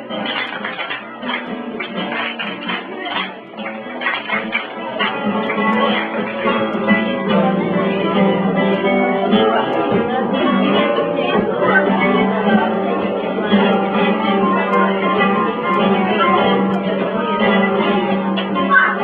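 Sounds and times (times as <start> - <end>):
flamenco guitar playing: 0.0 - 19.0.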